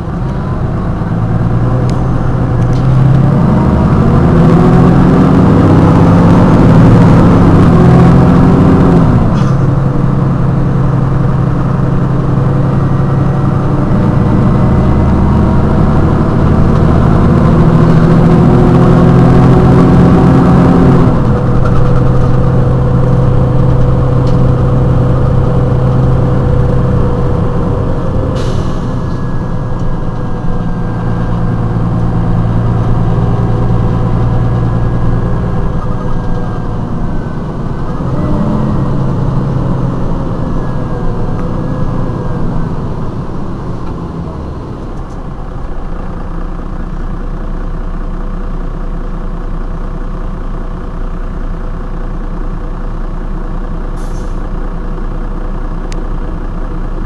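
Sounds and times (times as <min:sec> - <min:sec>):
bus engine idling: 0:00.0 - 0:57.0.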